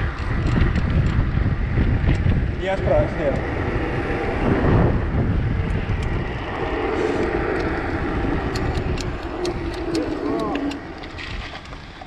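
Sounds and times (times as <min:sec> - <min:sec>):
bicycle tyre rumble: 0:00.0 - 0:12.0
steady hum: 0:00.0 - 0:12.0
wind on microphone: 0:00.0 - 0:12.0
sharp ticks: 0:05.6 - 0:06.6, 0:07.2 - 0:11.8.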